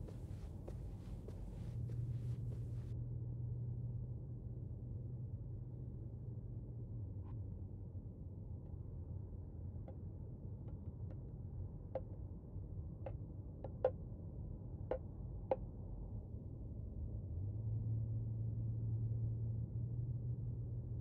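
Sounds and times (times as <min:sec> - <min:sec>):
low steady hum: 0:00.0 - 0:02.9.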